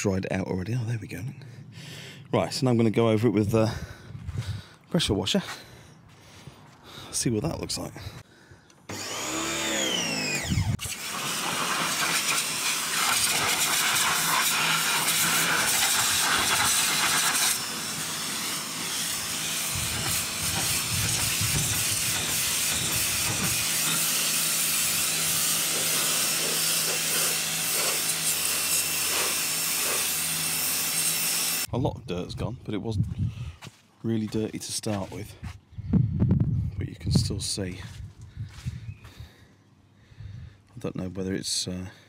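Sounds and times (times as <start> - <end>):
pressure washer whine: 8.9 - 31.7
pump motor hum: 8.9 - 31.7
water jet spraying hiss: 10.8 - 30.2.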